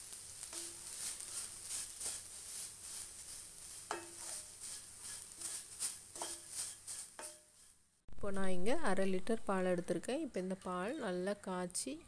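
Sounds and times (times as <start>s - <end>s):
dry flakes rustling scrape: 0.0s - 7.8s
faint sizzling: 0.0s - 12.0s.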